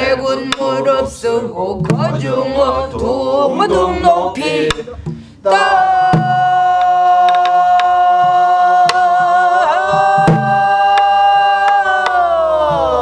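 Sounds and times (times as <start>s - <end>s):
barrel drum strokes: 0.0s - 3.3s
voices singing a long note: 0.0s - 13.0s.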